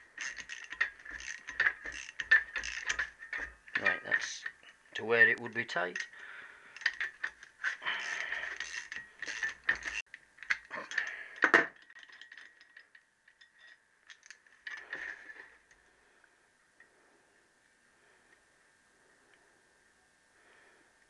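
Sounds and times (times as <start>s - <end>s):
ratchet wrench clicking: 0.2s - 3.8s, 6.8s - 11.0s.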